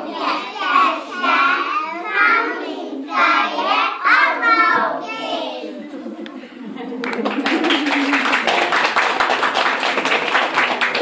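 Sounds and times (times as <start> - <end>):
children singing: 0.0 - 5.9.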